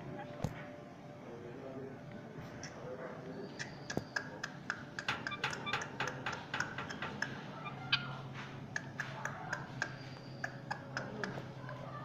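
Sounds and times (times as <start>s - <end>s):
parakeet chirps: 3.4s - 8.2s
parakeet clicking: 3.6s - 8.1s, 8.7s - 11.6s.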